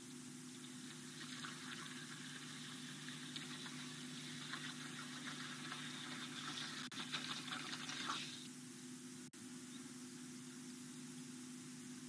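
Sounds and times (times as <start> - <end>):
crackling trickling hiss: 0.0 - 8.6
low electrical hum: 0.0 - 12.0.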